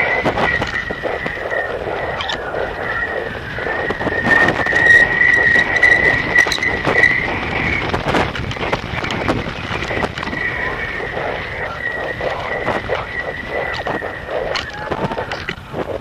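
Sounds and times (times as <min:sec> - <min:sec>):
kite rattling and flapping: 0:00.0 - 0:16.0
steady high whistle: 0:00.0 - 0:16.0
wind rushing: 0:00.0 - 0:16.0.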